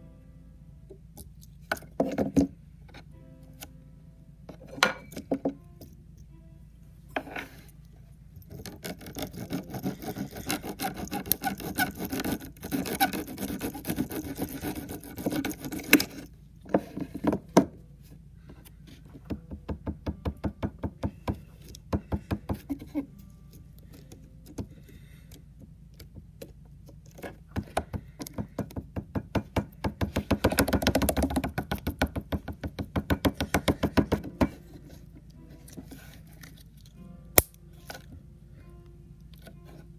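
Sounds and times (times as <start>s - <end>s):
serrated blade sawing: 8.6s - 16.3s.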